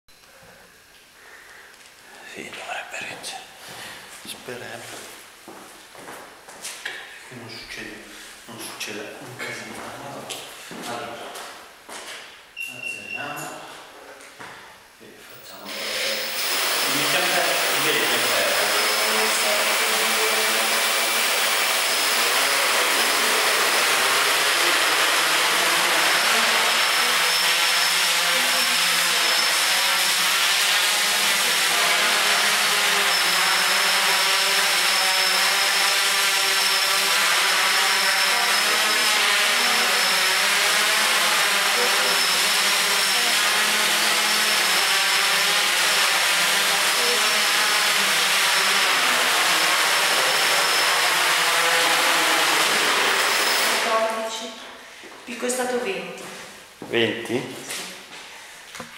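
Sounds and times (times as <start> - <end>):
drone propellers whirring: 15.3 - 30.6, 31.5 - 45.4.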